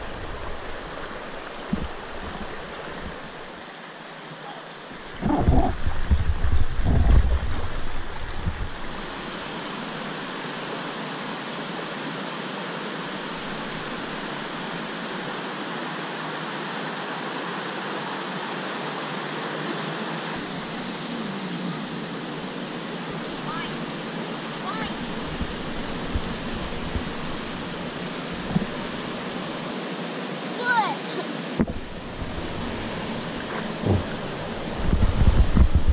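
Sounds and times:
wind buffeting microphone: 0.0s - 3.5s, 5.0s - 9.3s, 24.7s - 29.6s, 31.6s - 35.9s
water rushing over rocks: 0.0s - 35.9s.

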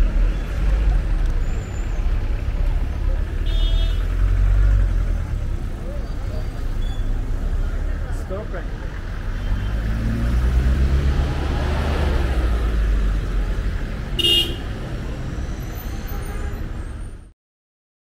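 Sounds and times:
traffic engine rumble: 0.0s - 17.3s
car horn toot: 3.4s - 4.1s, 14.2s - 14.7s, 15.6s - 16.8s.

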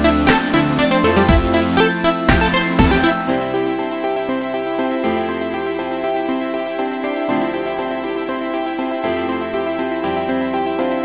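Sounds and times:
sustained ambient music: 0.0s - 11.0s.

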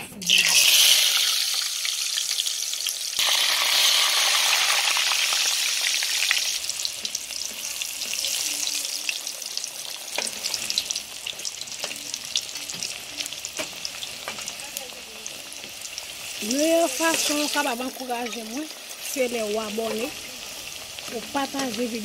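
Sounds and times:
oil crackling and popping: 0.2s - 22.0s
plantain sizzling in hot oil: 0.2s - 22.0s
spatula turning food: 6.2s - 22.0s.

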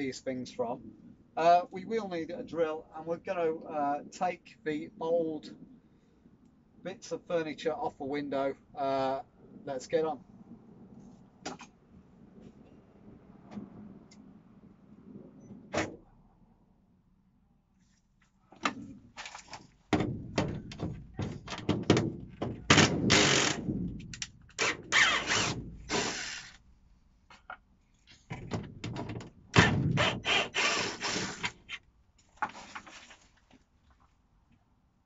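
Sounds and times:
metal knocks and rattles: 19.8s - 24.9s, 28.2s - 30.3s
cordless drill driving screws: 22.7s - 23.6s, 24.6s - 26.6s, 29.6s - 31.6s.

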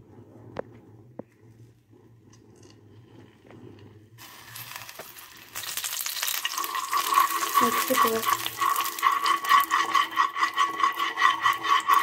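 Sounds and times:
ghee sizzling and crackling: 4.1s - 12.0s.

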